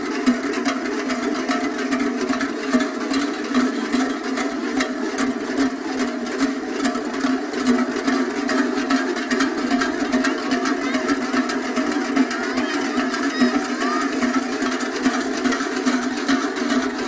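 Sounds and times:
din of a dense crowd: 0:00.0 - 0:17.0
large cowbells clanking: 0:00.0 - 0:17.0.

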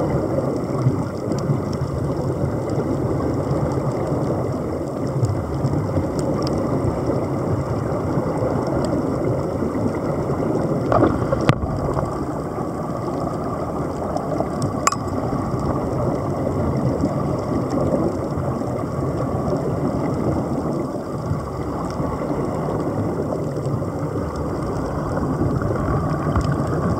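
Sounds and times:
dense underwater rumble: 0:00.0 - 0:26.9
air bubbling: 0:10.0 - 0:17.4.

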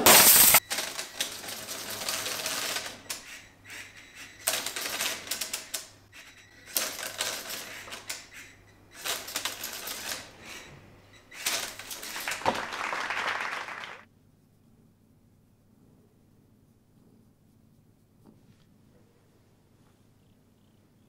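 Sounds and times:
pneumatic engine clattering: 0:00.0 - 0:12.3.

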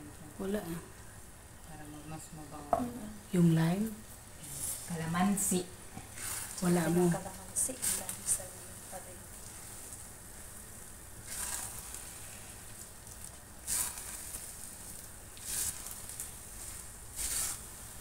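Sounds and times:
rice sizzling in a pan: 0:03.2 - 0:18.0
spatula stirring: 0:04.6 - 0:18.0
short hissing bursts: 0:07.8 - 0:18.0.

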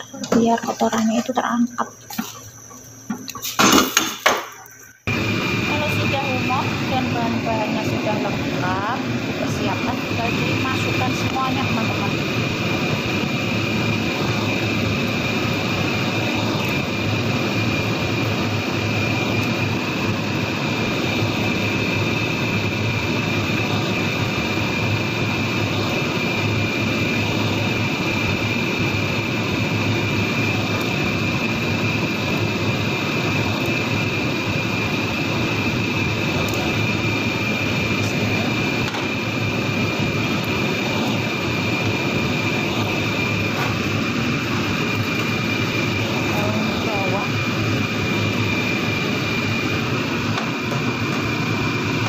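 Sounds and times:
exhaust fan roaring: 0:00.0 - 0:52.0
faint high whine: 0:00.0 - 0:52.0.

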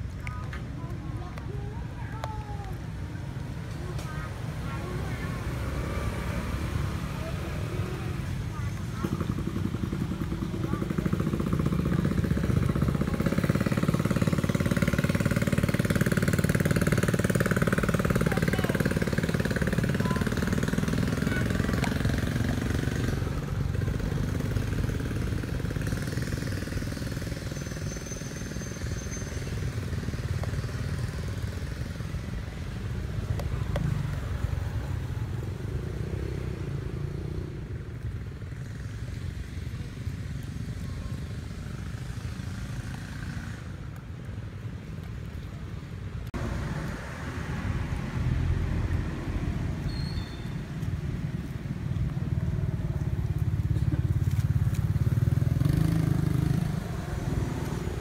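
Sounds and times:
vehicle engine running: 0:04.1 - 0:45.3.

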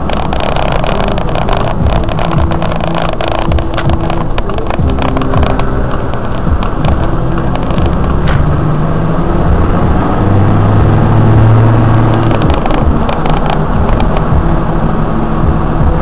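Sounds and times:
diesel engine running: 0:00.0 - 0:16.0
road noise: 0:00.0 - 0:16.0.

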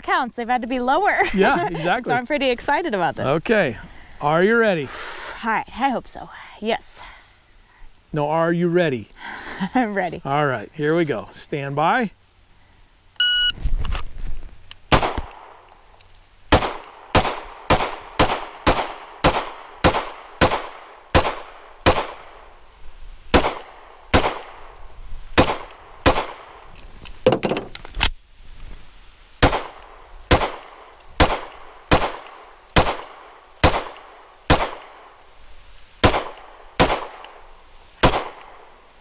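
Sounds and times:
handgun shots: 0:31.2 - 0:34.9, 0:38.0 - 0:38.4.

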